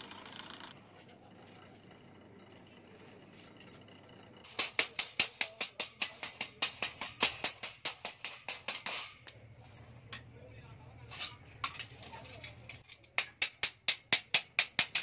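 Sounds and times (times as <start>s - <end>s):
hammer tapping sheet metal: 4.4s - 9.4s, 11.6s - 15.0s.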